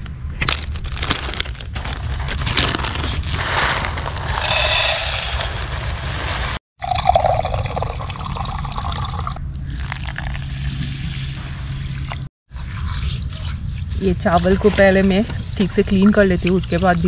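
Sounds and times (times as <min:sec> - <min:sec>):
dry rice poured into metal pot: 0:04.1 - 0:06.6.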